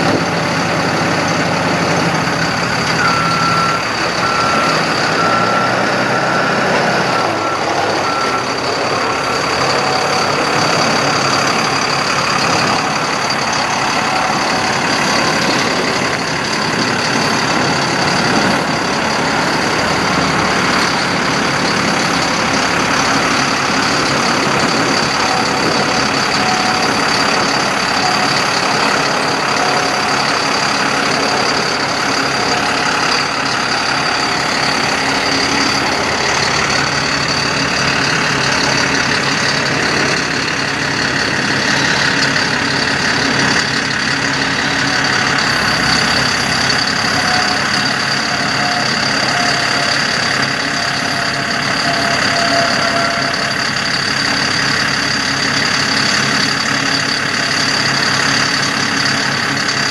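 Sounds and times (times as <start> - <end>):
steady high tone: 0.0 - 59.9
truck engine running: 0.0 - 59.9.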